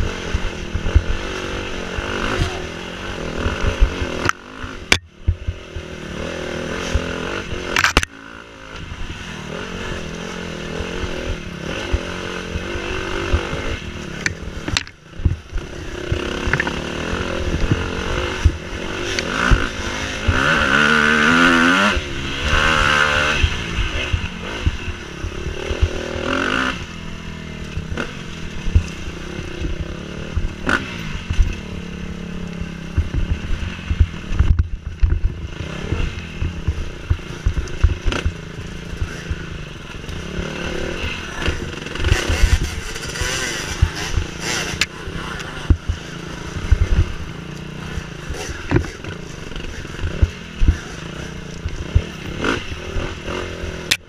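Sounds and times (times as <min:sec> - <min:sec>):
dirt bike engine revving: 0:00.0 - 0:54.0
bike knocks and rattles: 0:41.4 - 0:47.2, 0:47.8 - 0:52.6.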